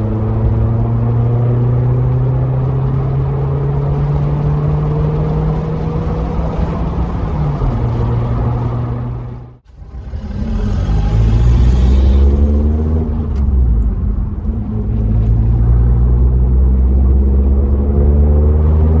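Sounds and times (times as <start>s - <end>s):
car exhaust rumble: 0.0s - 19.0s.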